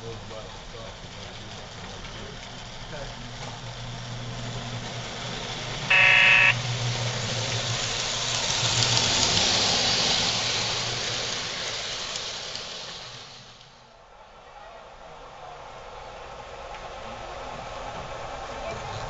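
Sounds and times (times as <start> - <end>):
model train motor hum: 0.0 - 13.8
wheels running on track: 0.0 - 19.0
electronic train horn blast: 5.9 - 6.6.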